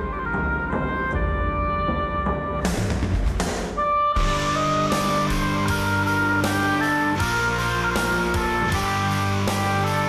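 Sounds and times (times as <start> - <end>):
melody of held notes: 3.9 - 10.0
steady bass line: 4.2 - 10.0.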